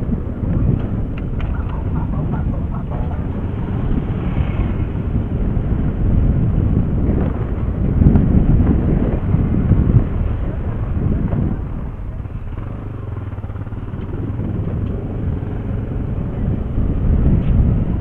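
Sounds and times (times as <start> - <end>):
motorcycle engine at low speed: 0.0 - 18.0
wind rumbling on microphone: 0.0 - 18.0.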